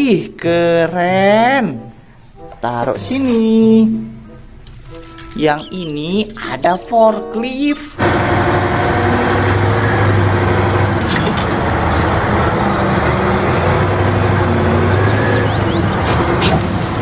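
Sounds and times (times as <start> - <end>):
diesel engine running under load: 8.0 - 17.0.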